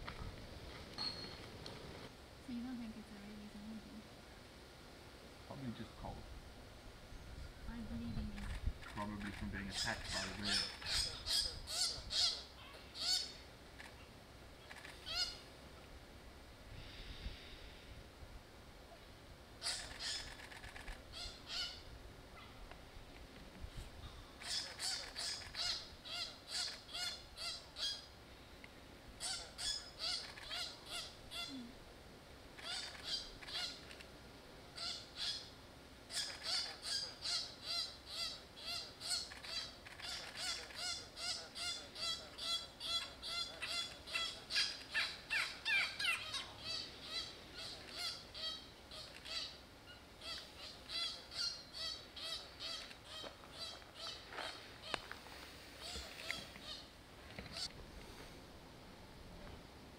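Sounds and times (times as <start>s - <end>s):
repeated animal calls: 7.8s - 15.5s, 19.6s - 22.6s, 24.3s - 28.1s, 29.2s - 31.7s, 32.6s - 34.0s, 34.8s - 55.2s, 55.8s - 57.8s.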